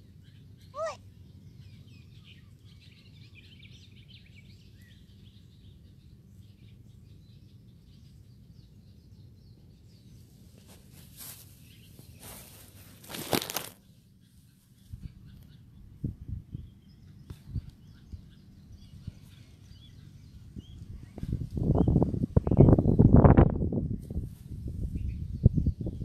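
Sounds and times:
small birds chirping: 0.0s - 26.0s
brief rustling: 10.6s - 13.8s
steady low rumble: 14.8s - 26.0s.

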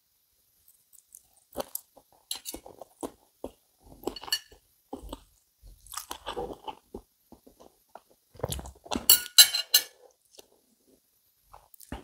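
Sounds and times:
chewing: 0.7s - 9.1s
knife and fork on plate: 2.3s - 2.7s, 8.9s - 10.0s
cutlery clinking on plate: 9.0s - 10.0s.

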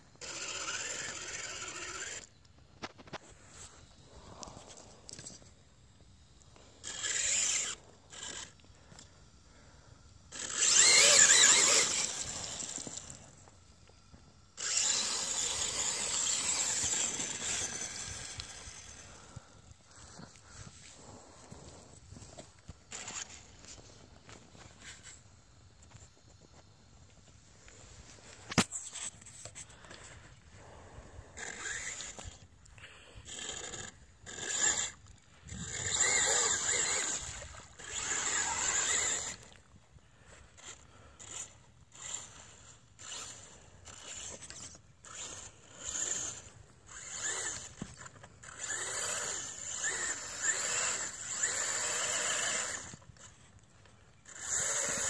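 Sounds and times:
rc truck motor whining: 0.0s - 27.1s, 27.7s - 55.0s
tyres churning through mud: 10.3s - 13.4s, 14.6s - 21.5s, 33.3s - 39.6s, 40.4s - 55.0s.

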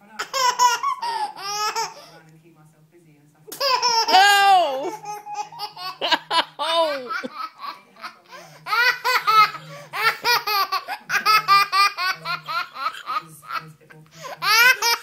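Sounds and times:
toddler girl laughing: 3.6s - 7.8s.

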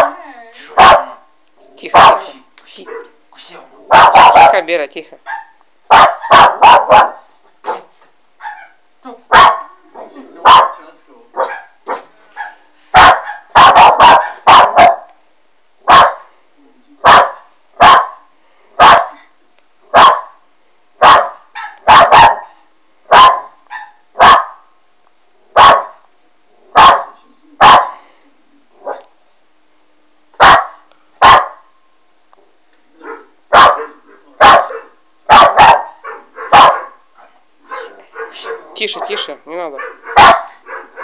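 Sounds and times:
puppy barking: 0.0s - 0.2s, 0.8s - 1.3s, 1.9s - 3.2s, 3.9s - 4.7s, 5.3s - 9.8s, 10.4s - 10.8s, 11.4s - 15.2s, 15.9s - 16.3s, 17.0s - 18.2s, 18.8s - 19.2s, 19.9s - 20.4s, 21.0s - 24.6s, 25.6s - 26.0s, 26.8s - 28.0s, 28.8s - 29.1s, 30.4s - 31.7s, 33.0s - 37.1s, 37.7s - 41.0s.

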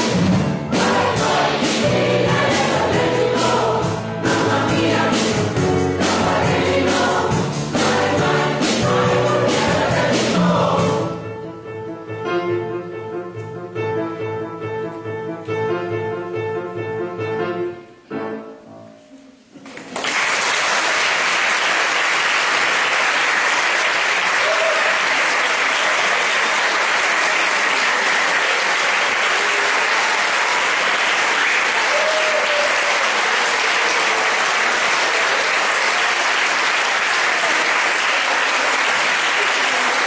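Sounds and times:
choir and band held chord: 0.0s - 11.4s
audience applause: 19.7s - 40.0s.

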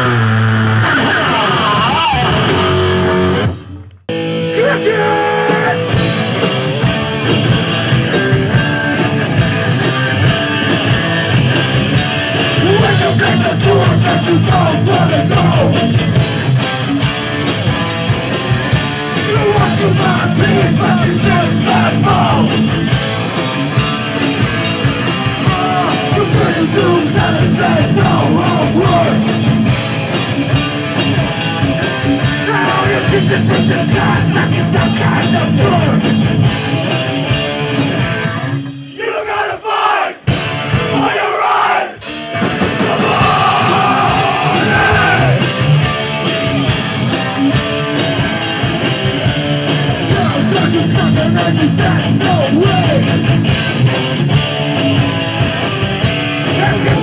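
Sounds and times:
guitar: 0.0s - 57.0s
rock song: 0.0s - 57.0s
drum beat: 5.5s - 38.2s, 39.7s - 57.0s
person singing: 12.6s - 15.8s, 25.5s - 29.2s, 32.4s - 36.0s, 42.8s - 45.5s.

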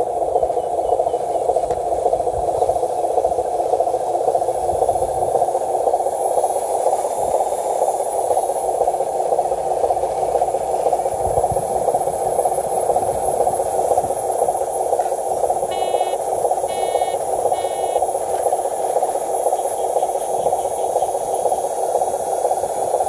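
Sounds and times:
short electronic beeps: 15.7s - 18.0s.

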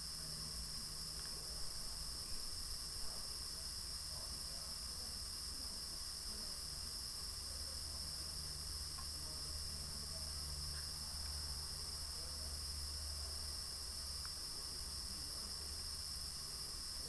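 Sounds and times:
faint ticks: 8.9s - 9.2s, 14.2s - 14.4s.

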